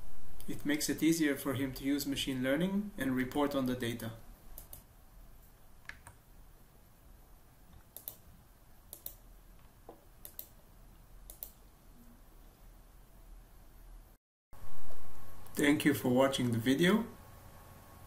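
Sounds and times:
computer mouse clicks: 4.6s - 4.9s, 7.7s - 8.2s, 8.9s - 10.6s, 11.3s - 11.6s.

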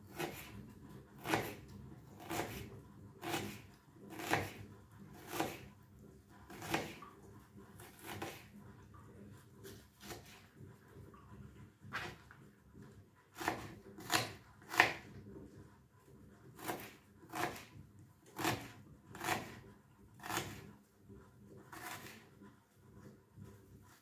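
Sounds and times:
knife chopping on cutting board: 0.1s - 0.6s, 1.2s - 5.7s, 6.5s - 7.1s, 7.8s - 8.5s, 9.7s - 10.5s, 11.9s - 12.3s, 13.4s - 15.2s, 16.6s - 17.8s, 18.4s - 19.6s, 20.2s - 20.7s, 21.7s - 22.2s.

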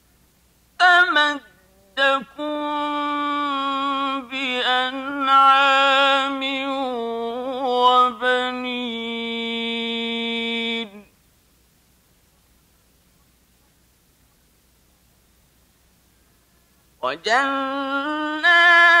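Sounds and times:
man chanting melodically: 17.0s - 19.0s.

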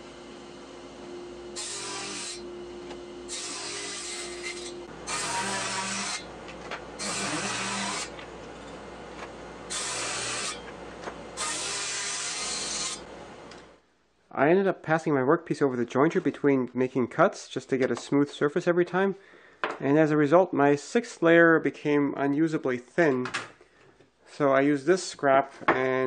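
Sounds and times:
table saw humming: 0.0s - 13.6s
saw blade cutting wood: 1.6s - 2.4s, 3.3s - 6.3s, 7.0s - 8.2s, 9.7s - 10.7s, 11.4s - 13.1s.

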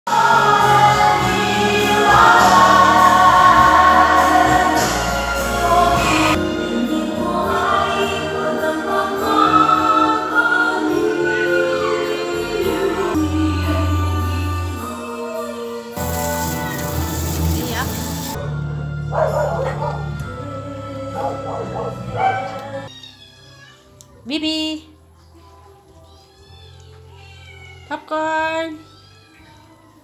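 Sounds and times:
choir singing: 0.1s - 17.3s, 20.0s - 22.9s
background music: 0.1s - 30.0s.

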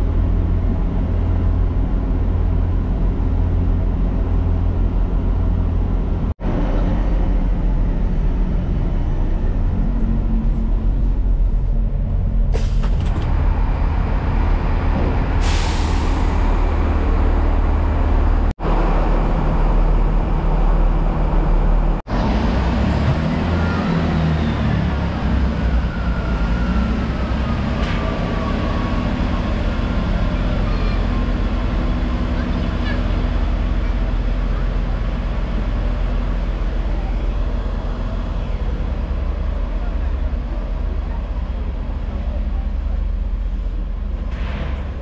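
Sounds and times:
diesel train engine drone: 0.0s - 45.0s
air hissing: 15.4s - 16.5s.

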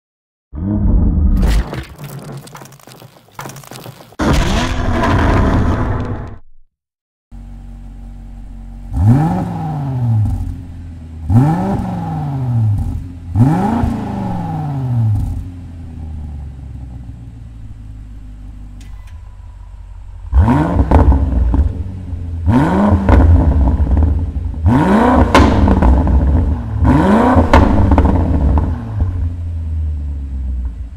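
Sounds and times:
car engine idling: 7.4s - 11.5s, 15.0s - 22.6s
car engine revving: 7.4s - 30.9s.

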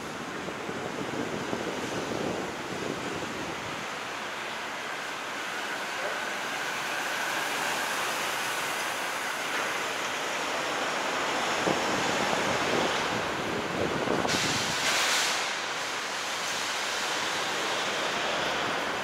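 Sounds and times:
wind rushing on microphone: 0.0s - 4.3s, 11.2s - 15.6s
road noise: 0.0s - 19.0s.

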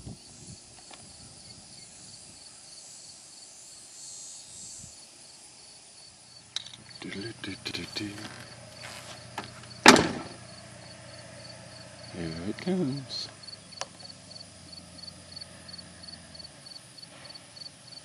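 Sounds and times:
insect chorus chirping: 0.0s - 18.0s
distant tractor engine hum: 6.1s - 18.0s
clicks and knocks: 9.4s - 10.4s.

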